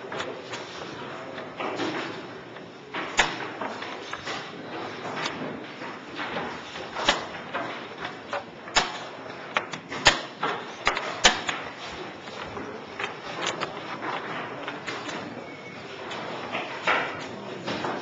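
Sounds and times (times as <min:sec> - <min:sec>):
murmur of crowded room: 0:00.0 - 0:18.0
chess pieces knocking on board: 0:05.1 - 0:15.2.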